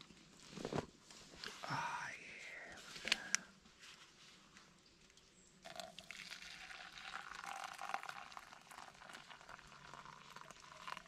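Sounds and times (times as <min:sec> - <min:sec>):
water pouring into mug: 0:05.6 - 0:11.0.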